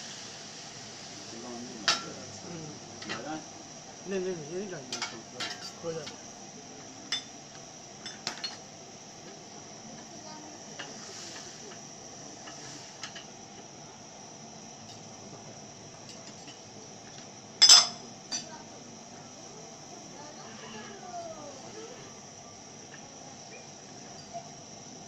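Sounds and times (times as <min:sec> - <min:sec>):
spoon clinking and scraping in a pan: 0:17.6 - 0:18.0.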